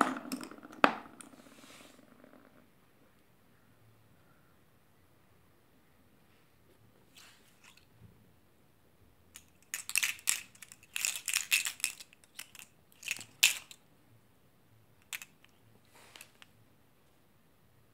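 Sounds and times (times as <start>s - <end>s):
batteries clicking together: 9.4s - 13.8s.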